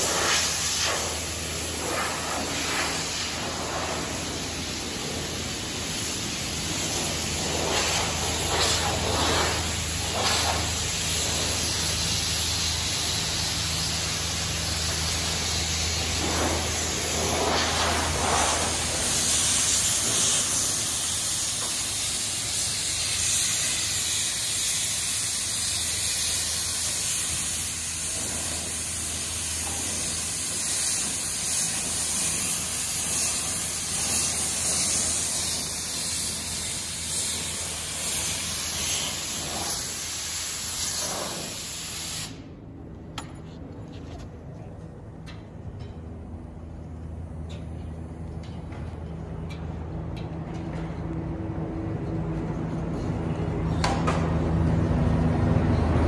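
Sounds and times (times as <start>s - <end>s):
air lance hissing: 0.0s - 42.6s.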